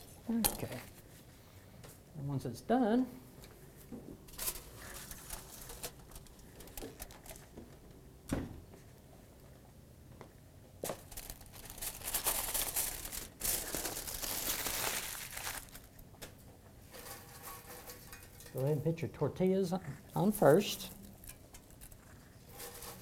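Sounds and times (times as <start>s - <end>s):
aluminium foil crinkling: 4.3s - 7.6s, 10.8s - 16.2s, 16.9s - 18.7s, 20.3s - 23.0s.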